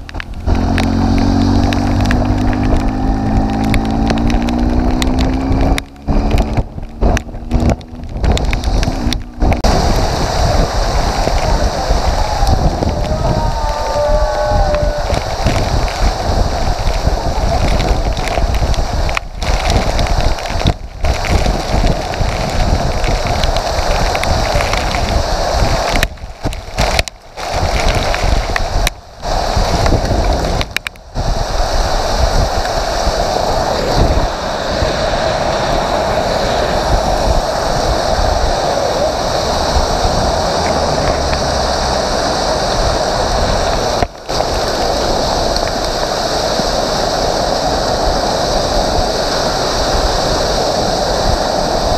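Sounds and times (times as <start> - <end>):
wind buffeting microphone: 0.0 - 51.9
hail and heavy rain pelting: 6.8 - 34.3.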